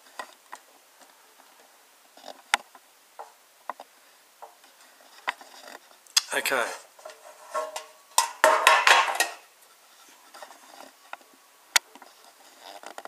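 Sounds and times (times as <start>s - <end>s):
metal tin knocks: 7.0s - 9.5s.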